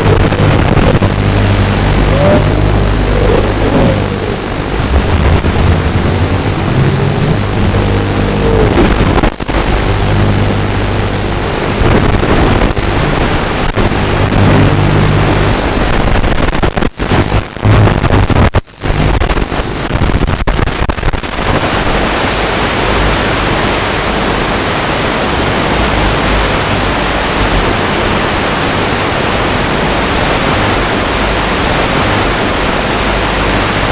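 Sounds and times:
motors buzzing hum: 0.0s - 19.8s
receiver static hiss: 0.0s - 33.9s.

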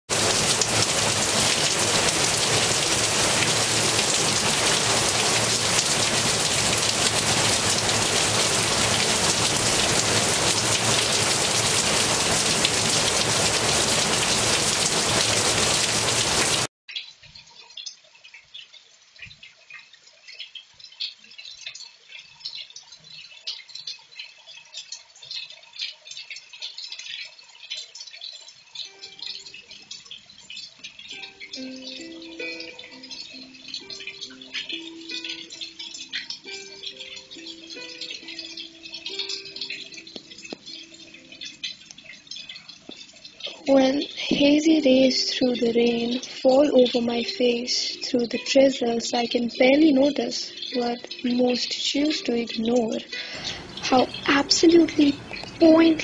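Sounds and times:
heavy rain pouring: 0.0s - 16.7s, 53.1s - 56.0s
water streaming off roof: 0.0s - 56.0s
faint high chirps and clicks: 16.9s - 43.7s.

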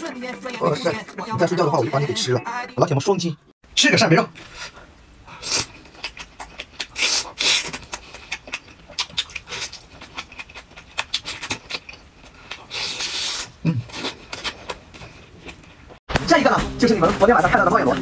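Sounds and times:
person chewing food: 4.5s - 16.0s
wet mouth clicks and smacks: 5.8s - 12.7s.

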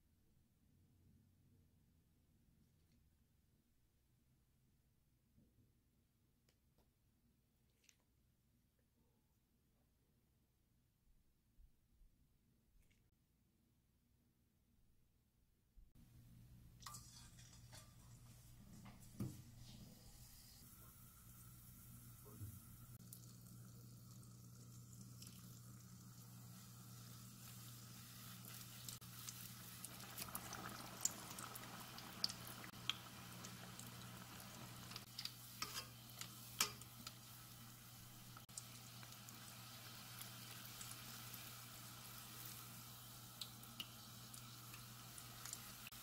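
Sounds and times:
dough sizzling in oil: 16.8s - 46.0s.

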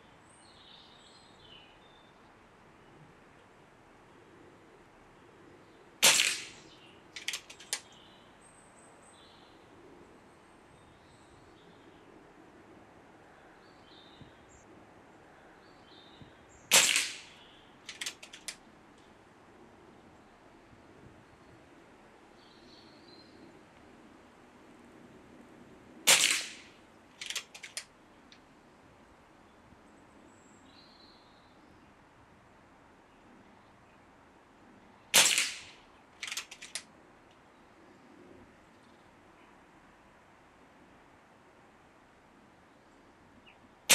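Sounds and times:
rifle action clicks: 6.0s - 6.6s, 7.2s - 8.0s, 16.7s - 18.6s, 26.1s - 27.9s, 35.2s - 36.9s
air rifle shot: 6.0s - 7.8s, 16.7s - 18.5s, 26.1s - 27.8s, 35.1s - 36.8s.

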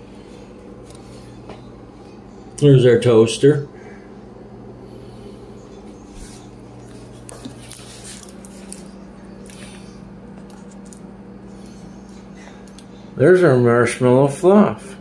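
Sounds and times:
low electrical hum: 0.0s - 15.0s
handling rustles: 6.2s - 11.1s.

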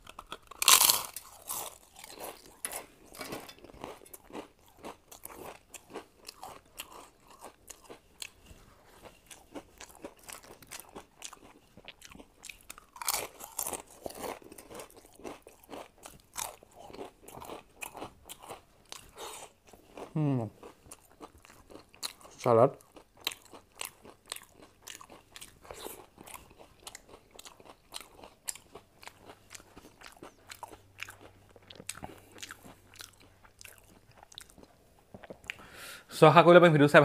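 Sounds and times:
crisp snack crunching: 0.0s - 8.4s, 9.3s - 19.1s
person humming: 20.2s - 20.5s.

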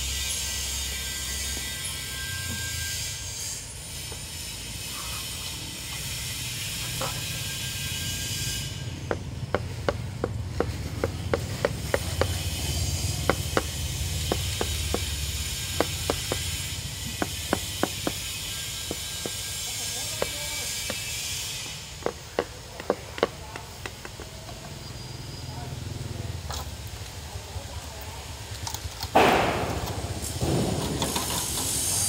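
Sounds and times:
hammering: 9.0s - 24.3s.

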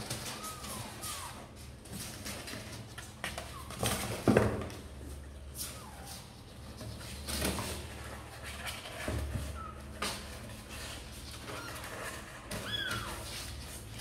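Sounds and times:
kittens mewing: 0.1s - 1.6s.

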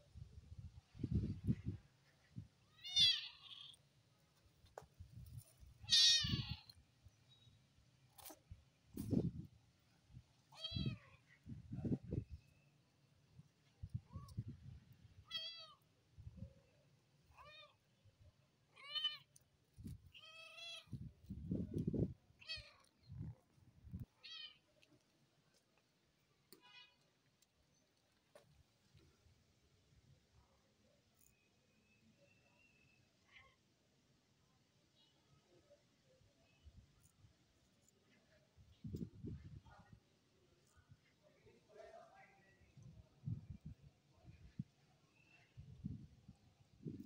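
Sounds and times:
kitten meowing: 2.7s - 3.7s, 5.9s - 6.7s.

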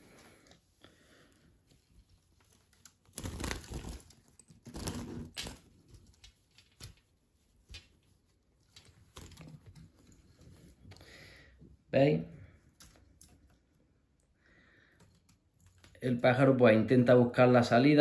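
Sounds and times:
cloth cover rustling: 0.0s - 10.8s.

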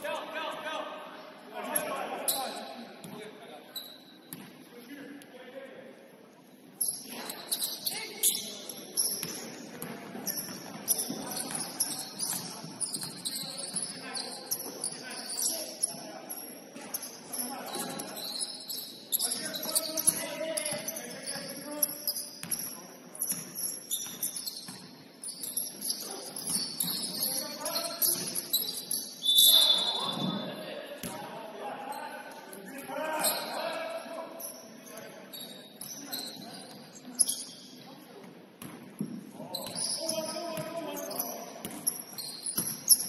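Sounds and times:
players' voices: 0.0s - 23.6s, 24.2s - 38.3s, 39.0s - 43.0s
basketball bouncing on court: 4.3s - 4.5s, 9.2s - 14.0s, 38.6s - 39.8s, 41.6s - 43.0s.

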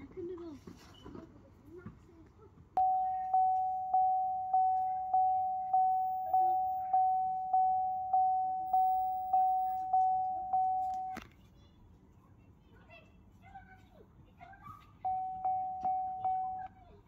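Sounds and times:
car warning chime dinging: 2.8s - 11.2s, 15.1s - 16.8s.

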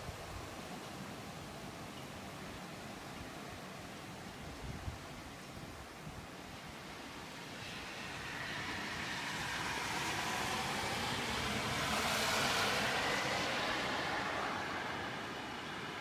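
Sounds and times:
car tyres hissing on wet road: 6.8s - 16.0s.

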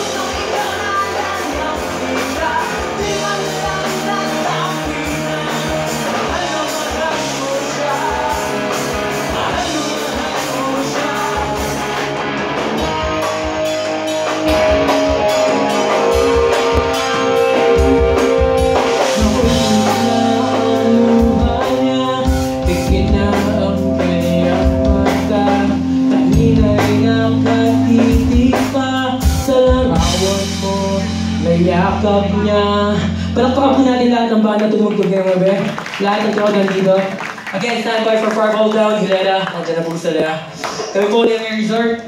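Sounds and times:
man singing into a microphone: 0.0s - 12.0s, 19.0s - 36.6s
drum kit: 0.0s - 42.0s
electric guitars: 0.0s - 42.0s.

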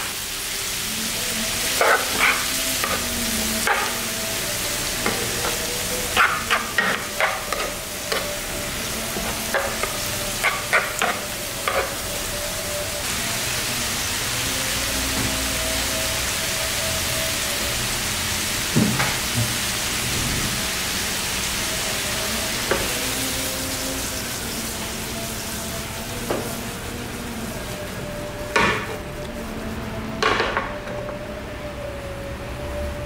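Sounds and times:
food sizzling in frying pan: 0.0s - 30.3s.

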